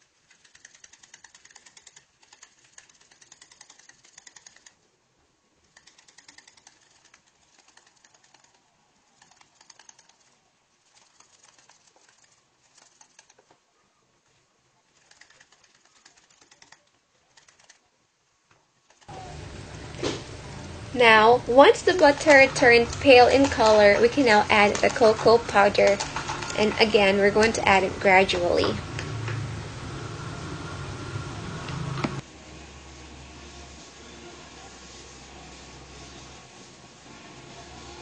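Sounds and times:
whisk clicking in a bowl: 0:21.9 - 0:27.7.

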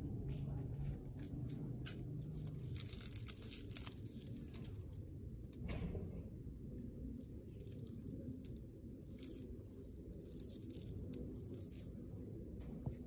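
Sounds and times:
low steady rumble: 0:00.0 - 0:13.0
hand rubbing dry bark: 0:02.2 - 0:05.0, 0:07.1 - 0:12.1.

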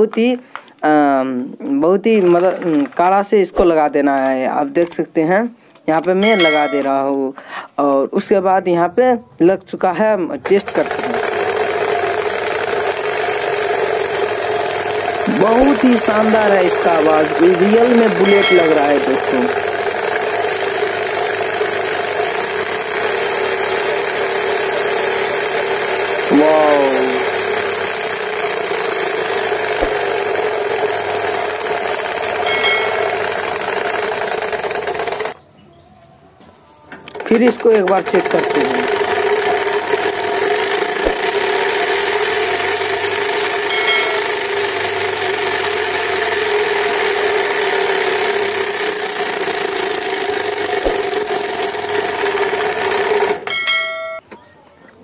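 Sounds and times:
spokes rattling plastic bottle: 0:02.0 - 0:03.3
spokes buzzing against plastic bottle: 0:10.4 - 0:35.4, 0:37.0 - 0:53.4.

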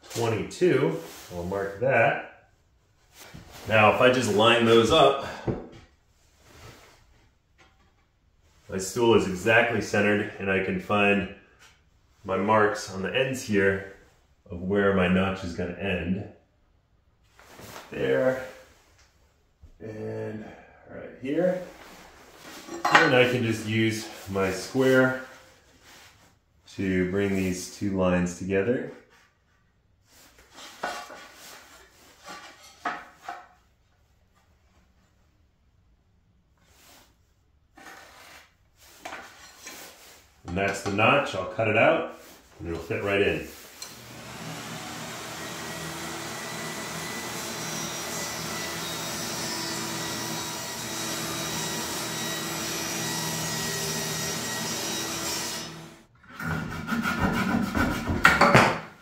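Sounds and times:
table saw cutting wood: 0:43.8 - 0:58.2
scraping on wood: 0:56.2 - 0:58.8.

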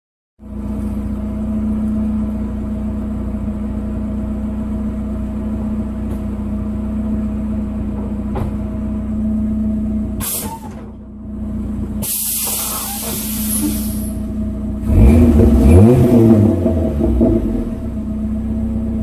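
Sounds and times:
engine running with even hum: 0:00.4 - 0:19.0.

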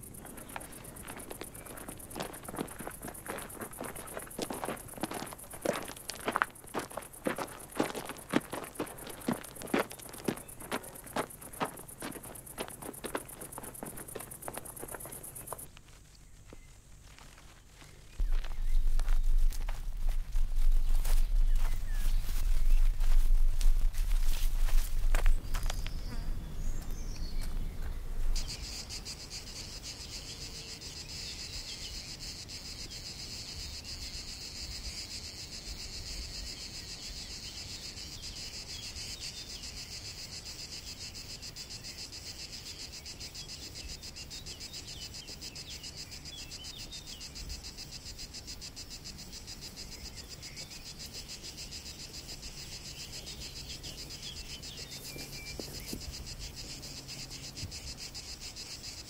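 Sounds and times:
insects chirring: 0:00.0 - 0:59.0.

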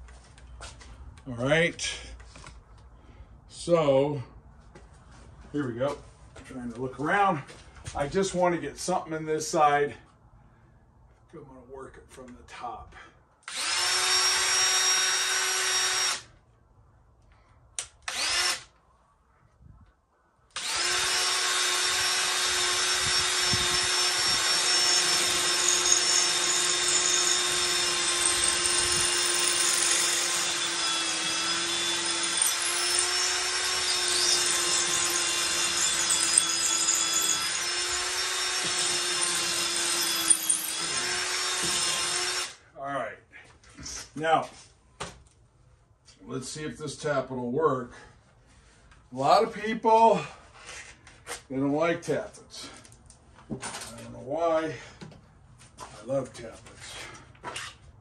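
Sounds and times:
cordless drill boring into concrete: 0:13.4 - 0:16.3, 0:18.0 - 0:18.8, 0:20.5 - 0:42.6.

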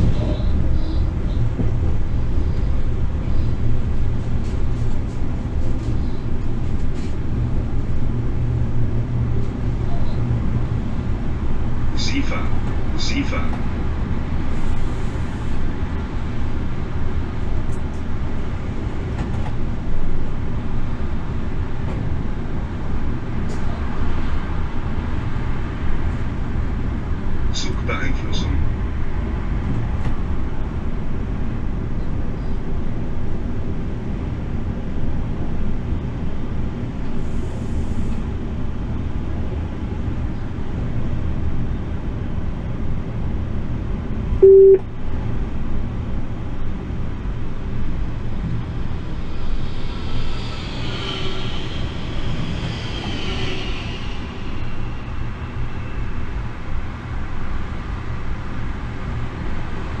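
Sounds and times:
short loud beep: 0:44.4 - 0:44.8
high wavering squeal: 0:49.2 - 0:56.3.

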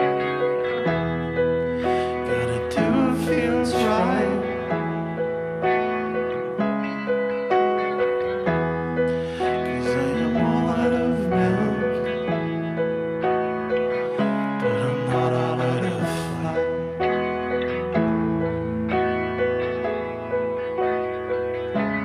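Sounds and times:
electric guitar: 0:00.0 - 0:22.0
keyboard chords: 0:00.0 - 0:22.0
man singing: 0:01.8 - 0:04.9, 0:09.3 - 0:12.4, 0:14.5 - 0:17.3.

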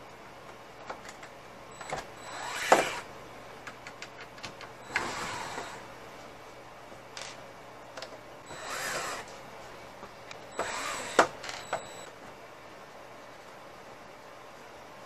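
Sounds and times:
cordless drill whirring: 0:02.2 - 0:03.1, 0:04.8 - 0:05.8, 0:08.5 - 0:09.3, 0:10.5 - 0:12.0.

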